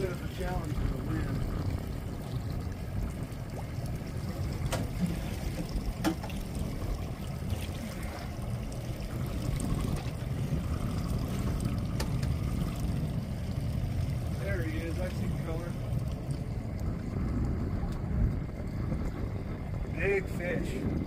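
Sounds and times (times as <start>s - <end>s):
steady low rumble: 0.0s - 21.0s
water lapping against boat hull: 0.0s - 21.0s.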